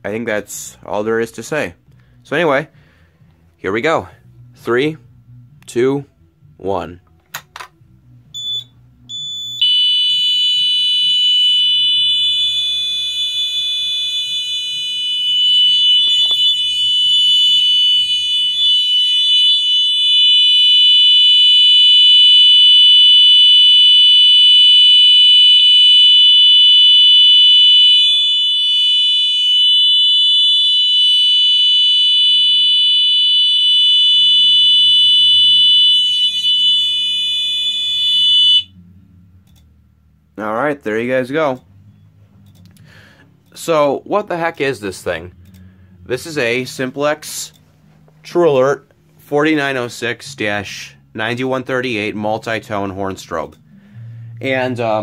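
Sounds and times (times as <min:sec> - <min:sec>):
continuous alarm horn tone: 0:08.0 - 0:39.6.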